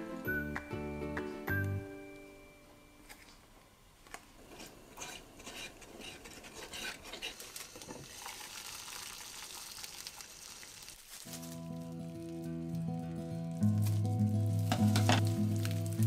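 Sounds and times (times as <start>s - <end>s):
wooden spoon stirring in ceramic pot: 4.5s - 7.4s.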